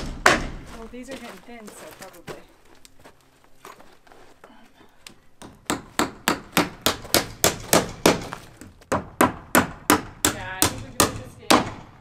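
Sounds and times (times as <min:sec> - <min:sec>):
hammer driving nails into wood: 0:05.4 - 0:12.0.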